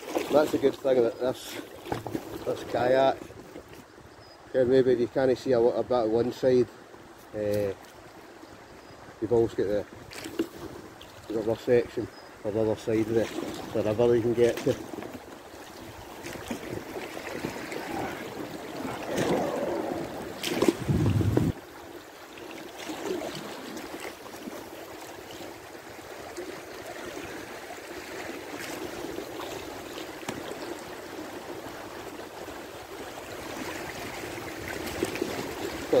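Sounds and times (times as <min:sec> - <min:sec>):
water lapping on kayak hull: 0:00.0 - 0:04.4, 0:05.1 - 0:36.0
river water rushing: 0:12.4 - 0:36.0.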